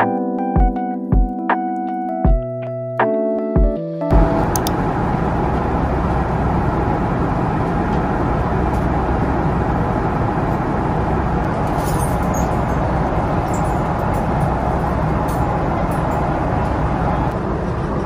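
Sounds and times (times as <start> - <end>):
airliner cabin drone: 4.1 - 18.0.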